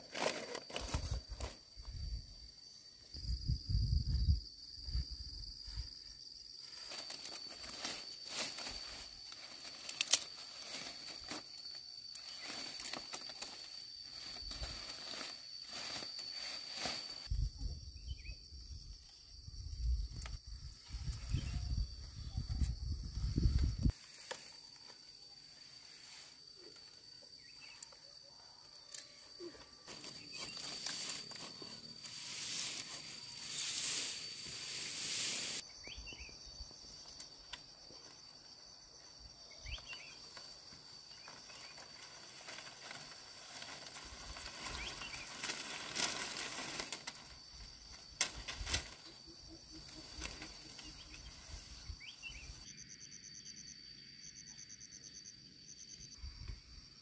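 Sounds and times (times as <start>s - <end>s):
bamboo slats rustling and knocking: 0.0s - 1.6s, 6.7s - 17.3s, 29.0s - 35.6s, 40.2s - 49.2s, 49.8s - 51.6s
high-pitched insect trill: 0.0s - 57.0s.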